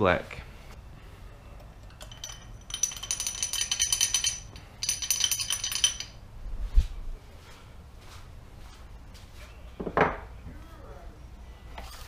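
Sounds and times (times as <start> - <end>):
ratchet wrench clicking: 1.9 - 6.2.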